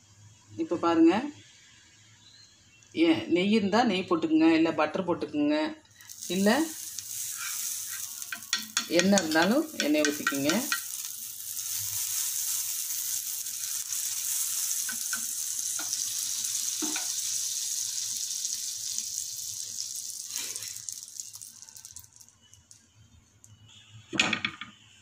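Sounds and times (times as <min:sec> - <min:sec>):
butter sizzling on hot iron: 0:05.9 - 0:23.0.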